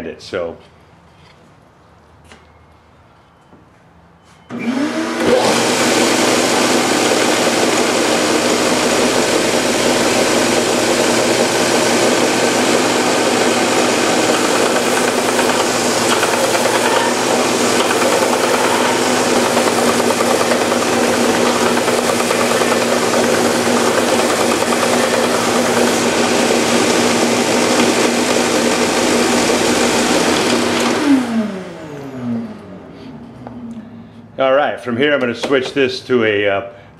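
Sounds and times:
belt sander running: 4.6s - 32.7s.

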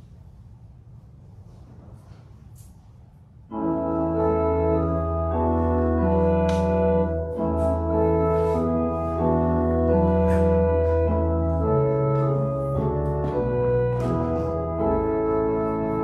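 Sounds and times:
church organ chords: 3.5s - 16.0s.

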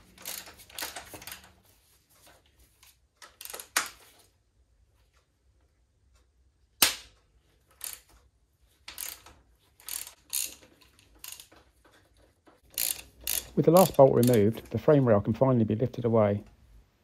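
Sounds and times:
ratchet clicking: 0.2s - 1.4s, 3.3s - 3.8s, 7.7s - 8.1s, 8.9s - 11.6s, 12.6s - 14.6s.

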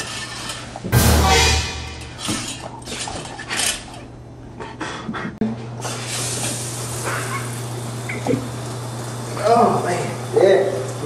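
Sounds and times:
curtain rings scraping along metal rod: 0.0s - 0.8s.

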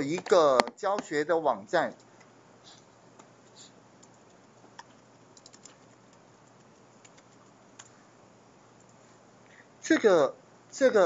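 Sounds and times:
computer keyboard typing: 3.2s - 8.0s.

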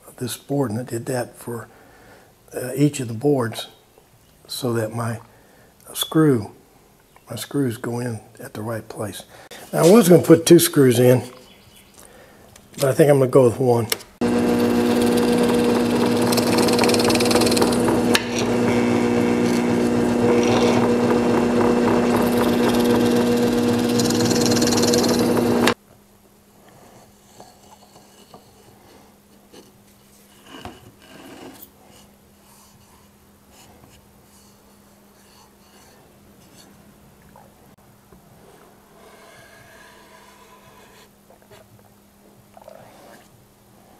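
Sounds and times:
drill press drilling wood: 14.2s - 25.8s.

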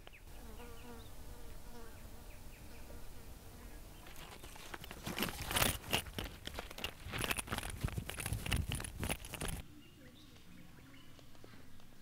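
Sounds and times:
insect buzzing: 0.0s - 5.7s
rustles and soft knocks of handling: 4.0s - 9.6s.

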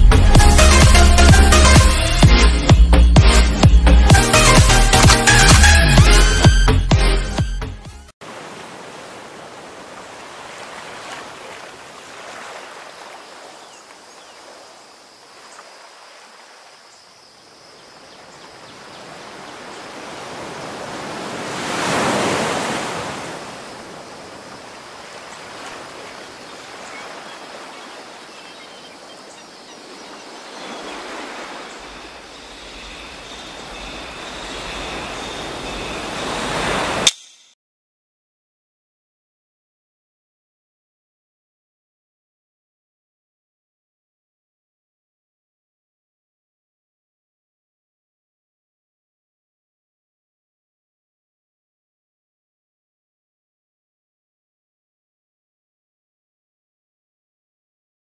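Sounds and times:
surf rushing: 8.2s - 13.7s, 18.3s - 37.1s.

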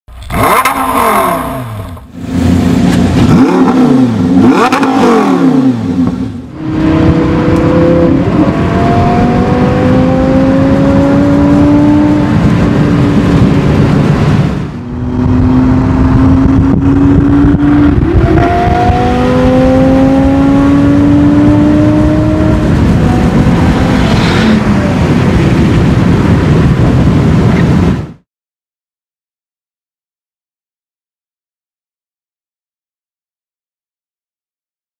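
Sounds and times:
road and tyre noise: 0.1s - 28.2s
sports car engine revving: 0.2s - 26.4s
car accelerating hard: 0.2s - 27.8s.

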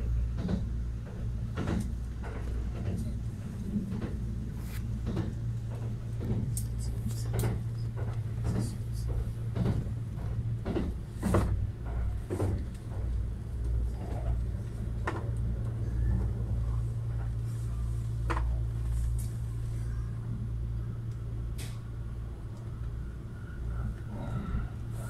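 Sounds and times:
train interior rumble: 0.0s - 25.0s.

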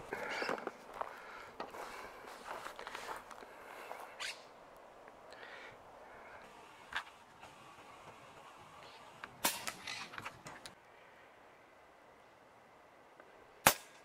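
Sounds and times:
air rifle shot: 9.4s - 9.8s, 13.6s - 14.0s.

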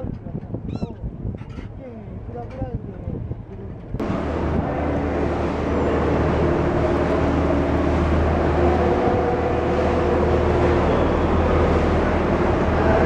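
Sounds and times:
boat engine humming: 3.4s - 13.0s.

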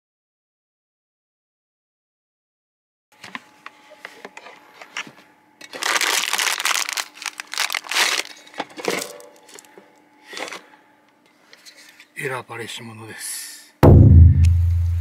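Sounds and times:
rustling and crinkling: 3.2s - 9.7s.

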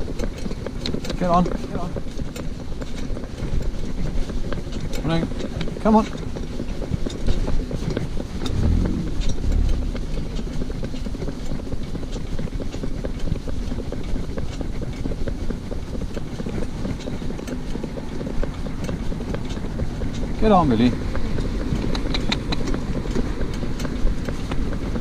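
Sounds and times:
cart wheels rumbling: 0.0s - 25.0s
hooves clopping on tarmac: 0.0s - 25.0s
wind buffeting microphone: 8.3s - 11.2s
car passing: 8.4s - 11.0s.

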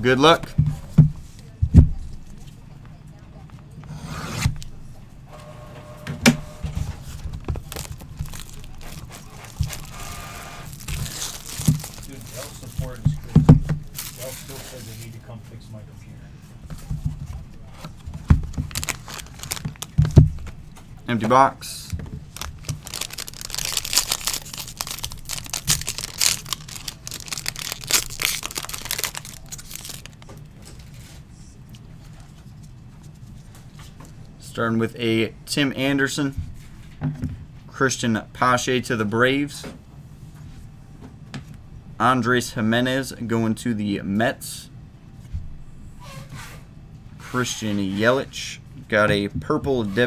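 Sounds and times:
shrink wrap crinkling and tearing: 7.0s - 15.2s, 17.8s - 20.6s, 21.8s - 31.0s.

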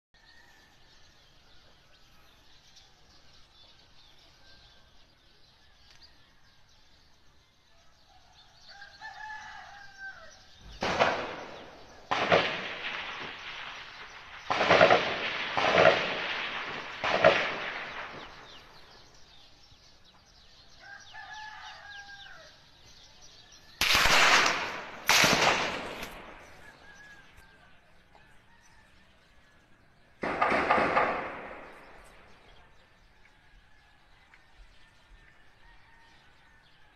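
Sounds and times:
distant gunshots with echo: 10.5s - 19.4s, 23.8s - 27.4s, 30.1s - 32.9s
bird call: 26.0s - 29.0s.

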